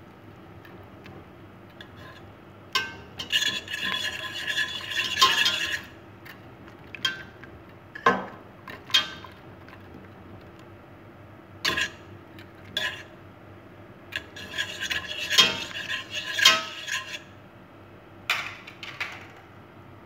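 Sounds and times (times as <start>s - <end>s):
whisk scraping metal pot: 1.7s - 6.0s, 11.7s - 12.1s, 12.7s - 13.1s, 14.1s - 17.4s.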